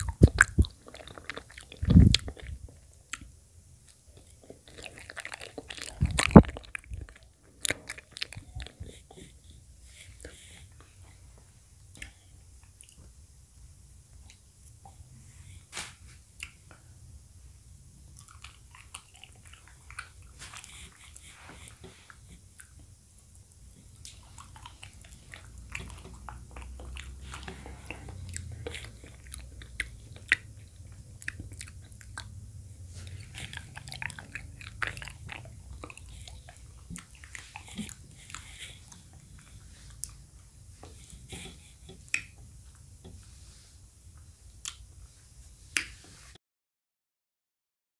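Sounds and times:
wet chewing sounds: 0.0s - 11.2s, 18.1s - 43.3s.

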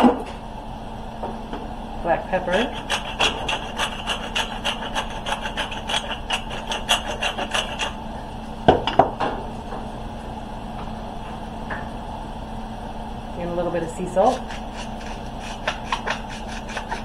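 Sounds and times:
pepper mill grinding: 2.6s - 8.0s, 14.3s - 17.0s.

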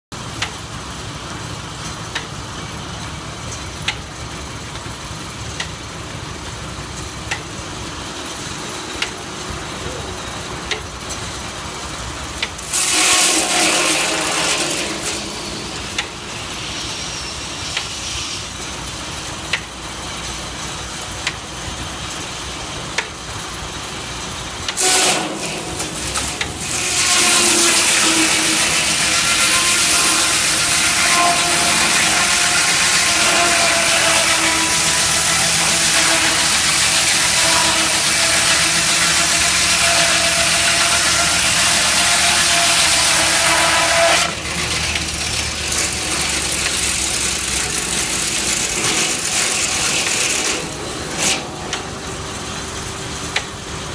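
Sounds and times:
sharp clicks of saw: 7.3s - 7.5s, 12.4s - 19.8s, 24.6s - 51.9s, 53.3s - 53.5s
saw blade cutting log: 12.3s - 19.8s, 24.7s - 52.1s
circular saw blade spinning: 24.8s - 43.0s.

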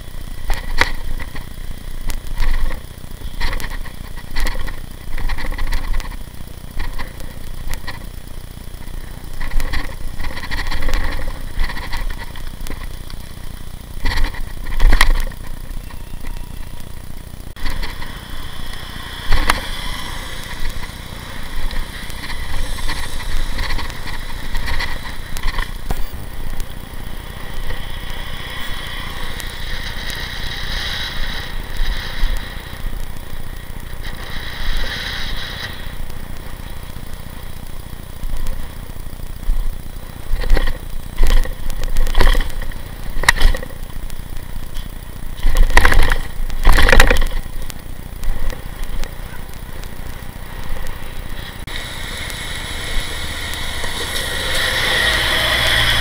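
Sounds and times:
road rumble: 0.0s - 56.0s
bicycle knocks and rattles: 0.4s - 16.3s, 20.4s - 27.8s, 37.8s - 51.7s.

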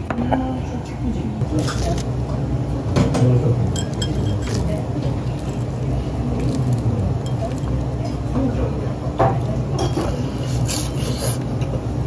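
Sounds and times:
dishes and glass clinking: 3.0s - 4.8s, 9.2s - 10.4s.

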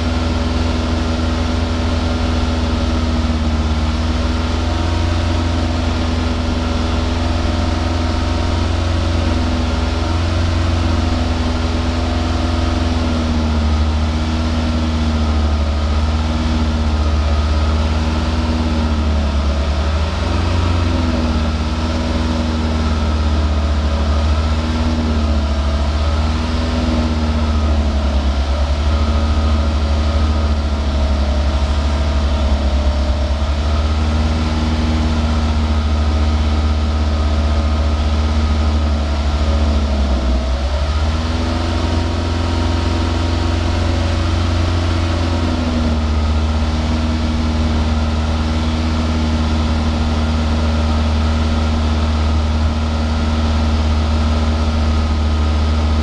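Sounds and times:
car engine exhaust idling: 0.0s - 56.0s.

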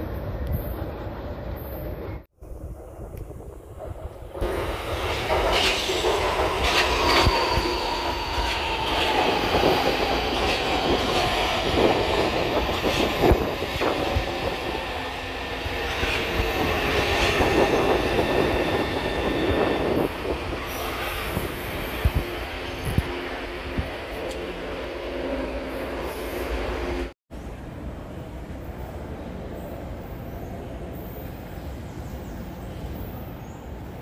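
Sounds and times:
train rolling rumble: 0.0s - 33.8s
faint high squeal: 5.7s - 10.0s.

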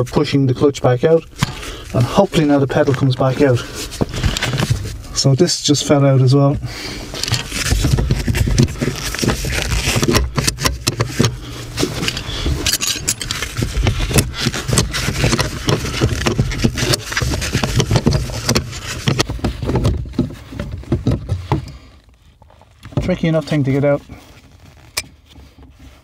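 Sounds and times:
glove rustling on microphone: 1.1s - 26.0s
pedal scraping and knocking: 1.4s - 5.1s, 6.5s - 23.3s.

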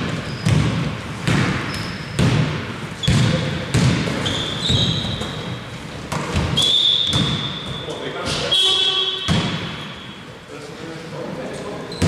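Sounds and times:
basketball bouncing on hardwood: 0.0s - 5.4s, 6.1s - 7.8s
sneakers squeaking on court: 0.0s - 10.4s.

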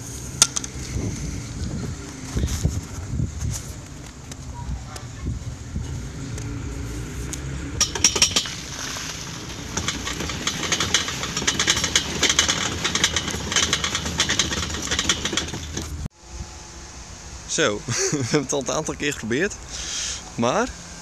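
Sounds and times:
cart rolling rumble: 0.0s - 16.1s
fast clicking rattle: 7.8s - 16.1s.

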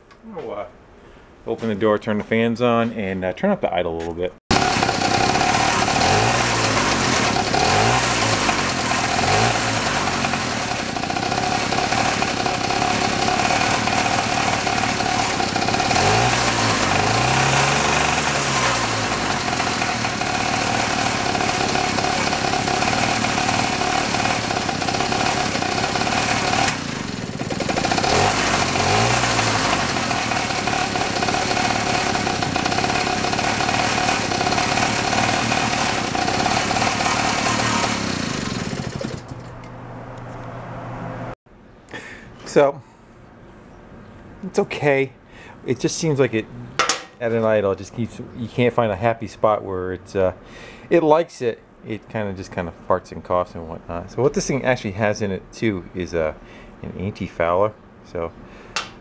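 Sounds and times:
small engine revving unevenly: 4.5s - 39.6s.

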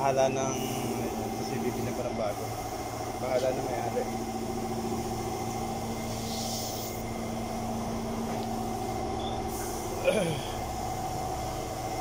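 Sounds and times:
engine idling: 0.0s - 12.0s
short hiss: 6.1s - 7.0s.

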